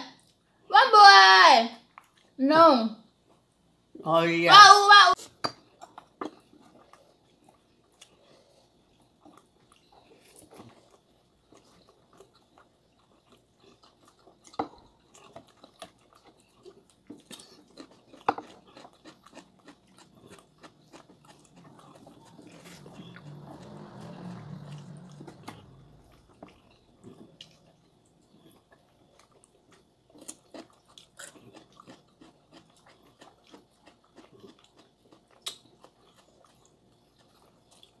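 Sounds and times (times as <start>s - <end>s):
quiet chewing: 1.9s - 2.4s, 5.2s - 38.0s.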